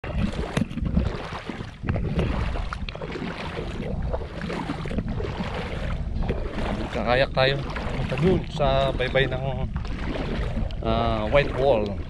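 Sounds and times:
sea water sloshing around wading legs: 0.0s - 12.0s
small splashes and clicks: 0.0s - 12.0s
wind rumble on microphone: 0.0s - 12.0s.

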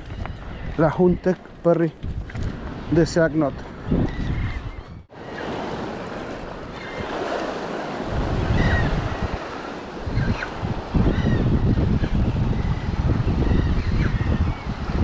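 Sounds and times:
wind on the microphone: 0.0s - 15.0s
sea waves washing: 5.1s - 13.4s.

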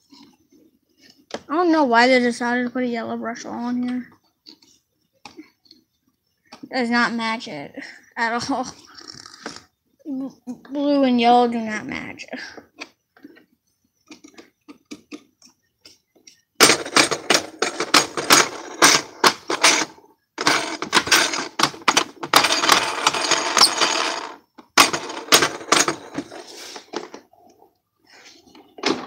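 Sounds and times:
plastic vacuum parts rattling: 16.6s - 27.2s.

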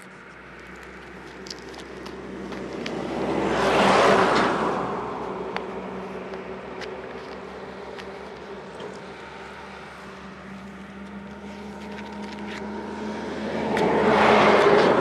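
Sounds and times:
vehicle passing by: 0.0s - 15.0s.

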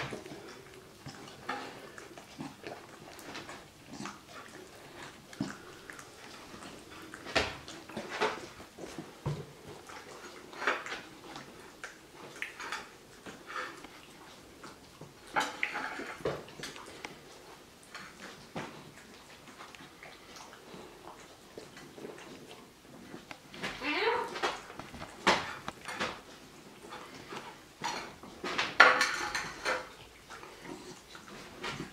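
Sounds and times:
dogs licking and chewing: 0.0s - 31.9s
plate clatter: 27.8s - 29.9s
plates clinking on glass: 28.8s - 29.9s.

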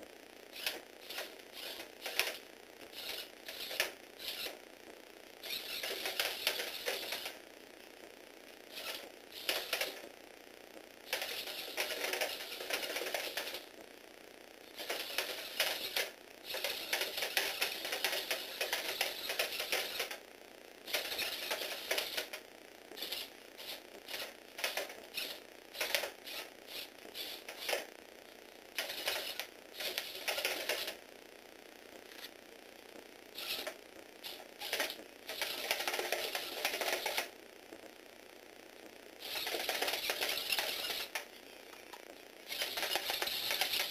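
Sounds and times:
toy robot plastic gears clattering: 0.6s - 2.4s, 3.0s - 4.5s, 5.4s - 7.4s, 11.1s - 13.6s, 14.7s - 20.1s, 20.9s - 22.4s, 23.0s - 27.9s, 28.8s - 31.0s, 33.4s - 37.3s, 39.2s - 41.2s, 42.5s - 43.9s.

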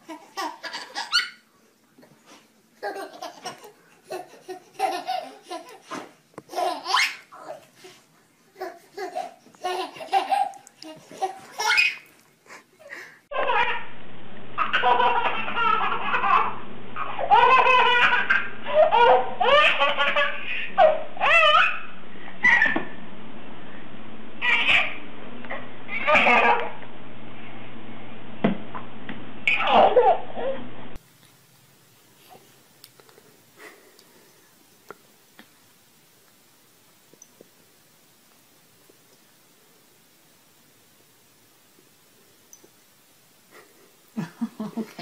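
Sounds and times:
baby laughing: 0.0s - 1.4s, 2.8s - 7.7s, 8.5s - 12.2s, 13.3s - 13.8s, 14.6s - 22.8s, 24.4s - 25.0s, 25.9s - 26.7s, 29.5s - 30.2s.

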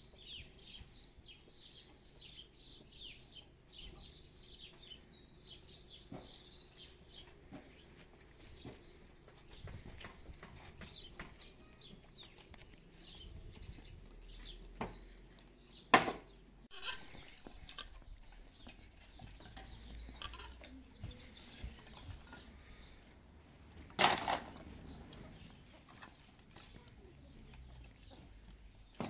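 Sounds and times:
small birds chirping: 0.0s - 29.0s
firewood sticks clattering on ground: 23.8s - 25.2s.

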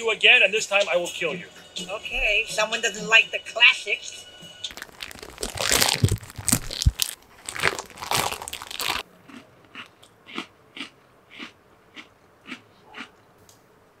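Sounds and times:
plastic wrapper crinkling: 4.7s - 9.0s
cookie crunching while chewed: 4.7s - 13.2s.

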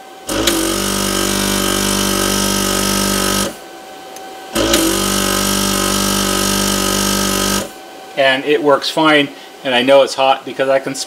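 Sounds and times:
vacuum pump humming: 0.0s - 8.2s.

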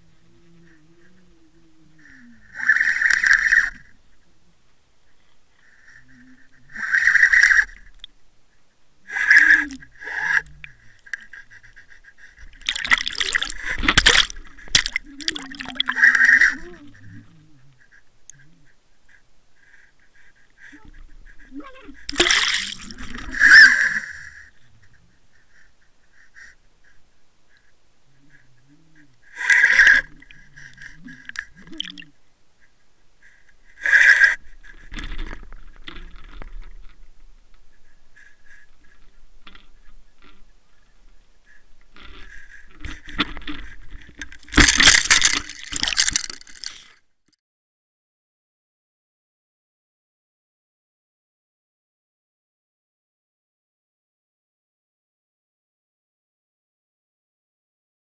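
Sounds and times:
water splashing and churning: 12.5s - 16.5s, 22.1s - 23.6s, 31.2s - 32.1s, 44.4s - 46.8s
loud short bursts underwater: 12.6s - 16.6s, 22.1s - 23.9s, 31.2s - 32.1s.

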